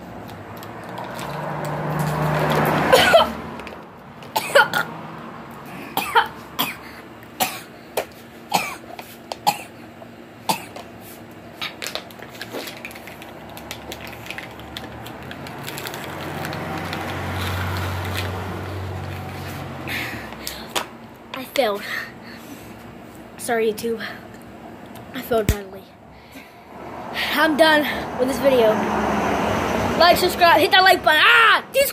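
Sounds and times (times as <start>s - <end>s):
boy coughing and spluttering: 2.6s - 3.5s, 4.4s - 5.0s, 5.9s - 7.7s, 8.5s - 9.7s, 10.5s - 10.8s.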